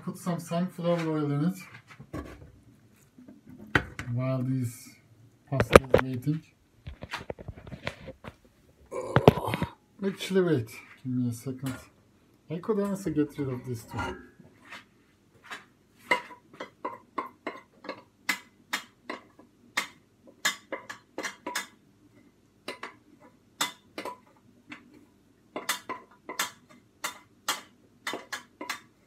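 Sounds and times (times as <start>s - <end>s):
kitchenware clinking and knocking: 13.7s - 14.4s.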